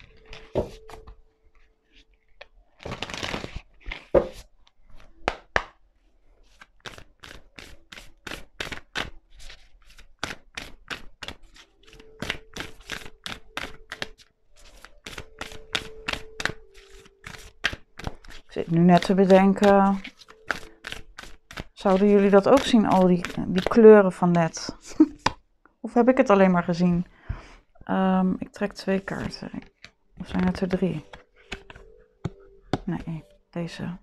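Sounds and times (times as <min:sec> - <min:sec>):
cards rustling: 0:00.0 - 0:05.6, 0:06.4 - 0:24.0, 0:29.0 - 0:33.4
cards snapping and tapping: 0:05.2 - 0:05.8, 0:17.2 - 0:21.7, 0:31.0 - 0:32.9.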